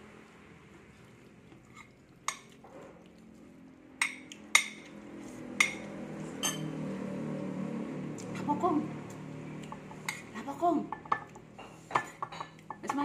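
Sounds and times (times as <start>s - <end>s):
metal spoon clinking on a plate: 5.6s - 6.7s, 10.9s - 13.0s.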